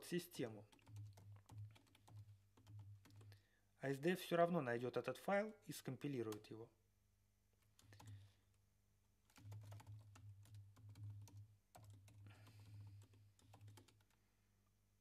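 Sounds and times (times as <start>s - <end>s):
faint keyboard typing: 0.5s - 3.5s, 6.3s - 6.5s, 7.6s - 8.6s, 9.2s - 14.2s.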